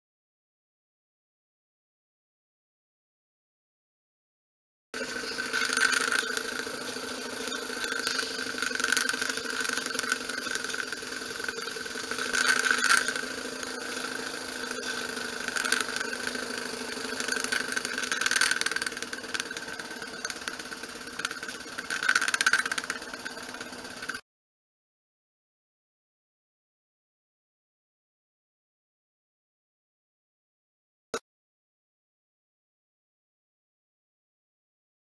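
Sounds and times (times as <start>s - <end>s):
model steam engine running: 5.0s - 24.2s.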